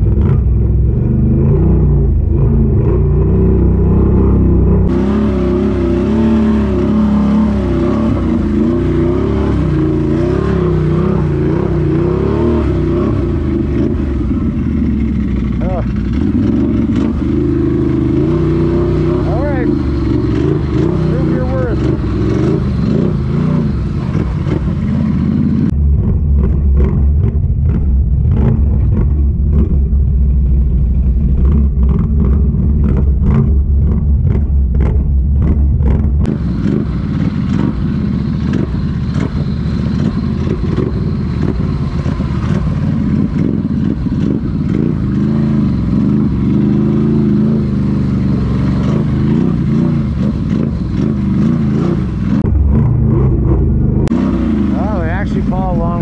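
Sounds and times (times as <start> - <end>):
atv engine droning: 0.0 - 56.0
vehicle wading through water: 54.1 - 56.0.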